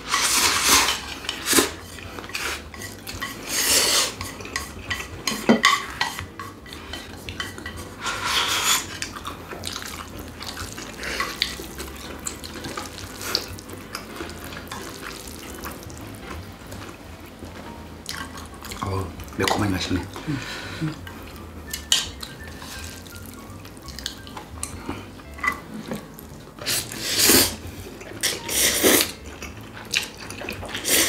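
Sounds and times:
utensils clicking on ceramic bowls: 0:00.1 - 0:09.2
chewing: 0:00.4 - 0:17.0, 0:18.0 - 0:31.0
people slurping noodles: 0:03.3 - 0:05.4, 0:26.6 - 0:27.6, 0:28.2 - 0:29.2, 0:30.7 - 0:31.0.

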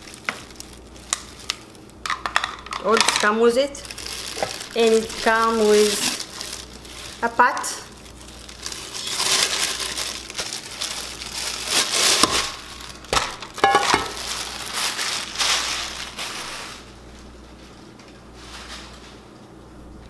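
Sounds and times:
plastic bag crinkling: 0:00.0 - 0:19.2.

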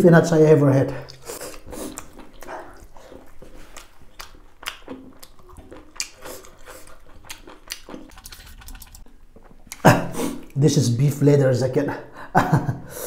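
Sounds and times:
person chewing: 0:01.0 - 0:10.6.

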